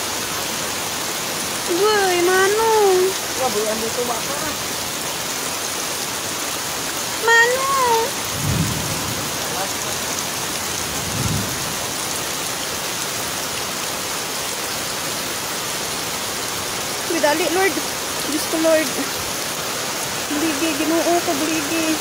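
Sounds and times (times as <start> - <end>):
heavy rain pouring on water: 0.0 - 22.0
low rumbles: 7.8 - 12.0.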